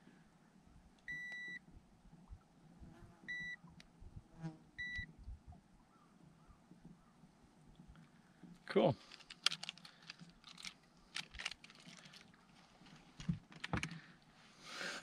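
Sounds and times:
digital scale beeping: 0:01.1 - 0:01.6
faint handling clicks: 0:09.0 - 0:14.1.

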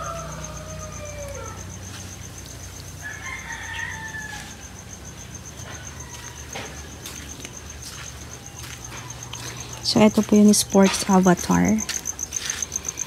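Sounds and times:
rooster crowing: 0:00.0 - 0:07.3.

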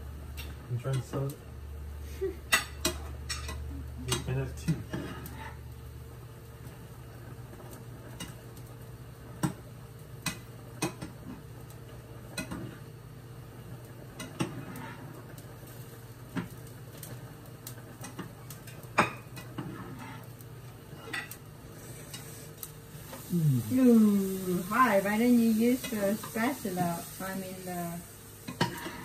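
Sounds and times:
steady low hum: 0:18.8 - 0:29.0.

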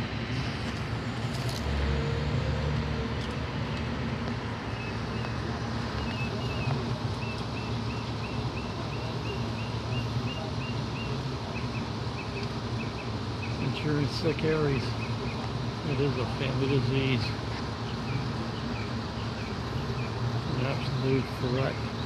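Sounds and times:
truck engine idling: 0:00.0 - 0:22.0
bird chirping: 0:06.0 - 0:13.7.

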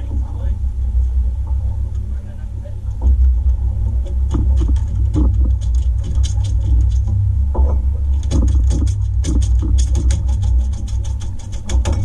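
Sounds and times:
steady low rumble: 0:00.0 - 0:12.0
fish beating against deck: 0:04.1 - 0:12.0.

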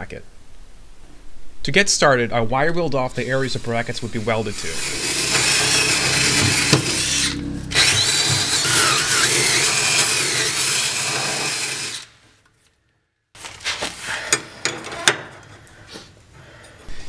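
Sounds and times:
drill wire brush scrubbing metal: 0:03.1 - 0:12.1.

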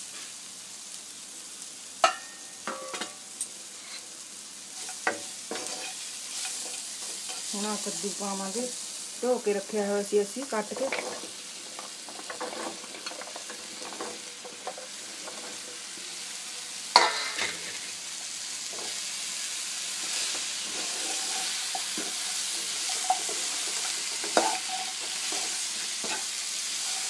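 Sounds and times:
pumpkin sizzling in hot oil: 0:00.0 - 0:27.0
wooden spatula scraping: 0:04.8 - 0:07.9, 0:10.5 - 0:16.1, 0:20.0 - 0:27.0.

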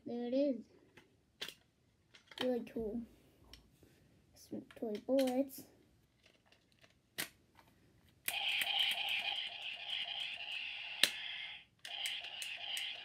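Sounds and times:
toy revolver cylinder spinning: 0:08.3 - 0:13.0.

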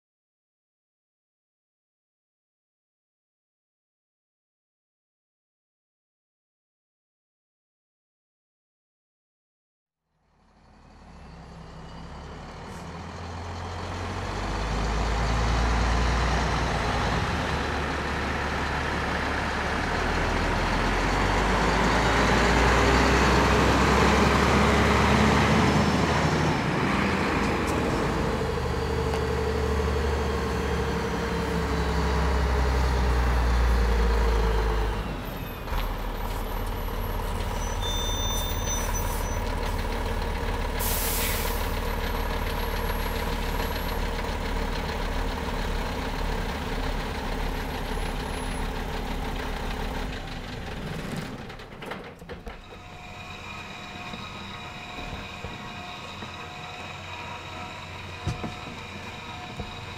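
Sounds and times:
lorry diesel engine rumbling: 0:10.3 - 0:59.9.

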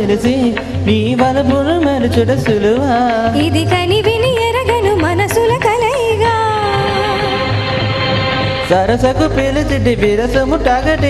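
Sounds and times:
instrumental backing: 0:00.0 - 0:11.0
percussion strokes: 0:00.0 - 0:11.0
girl singing into a microphone: 0:03.4 - 0:07.5.

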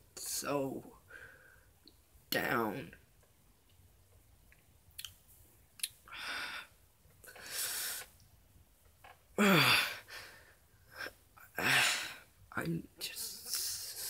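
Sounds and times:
mouth clicks: 0:04.9 - 0:05.2, 0:05.8 - 0:06.0
man sighing heavily: 0:09.4 - 0:10.4, 0:11.6 - 0:12.3.

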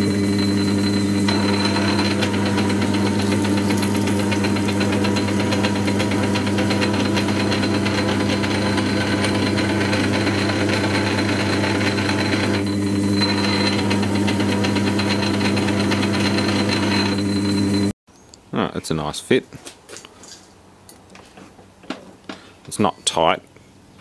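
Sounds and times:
electric motor hum: 0:00.0 - 0:17.9
lathe drive ticking rattle: 0:01.2 - 0:17.4.

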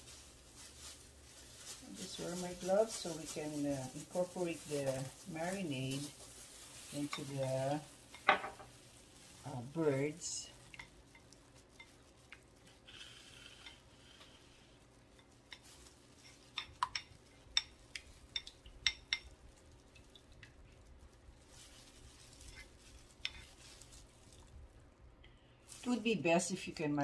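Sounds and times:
soft rustling: 0:00.0 - 0:27.0
kitchenware clinking: 0:08.1 - 0:08.8.

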